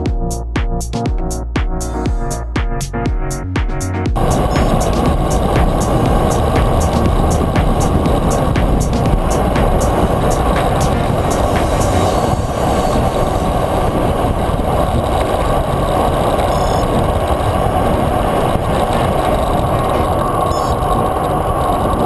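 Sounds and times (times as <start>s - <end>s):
bicycle road noise: 4.2s - 22.0s
wind rushing: 4.2s - 22.0s.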